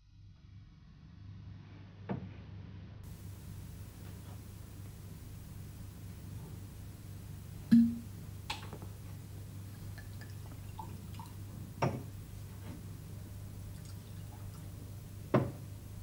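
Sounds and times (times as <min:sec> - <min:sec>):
steady low hum: 0:03.0 - 0:16.0
knocks on a cabinet: 0:15.3 - 0:15.6.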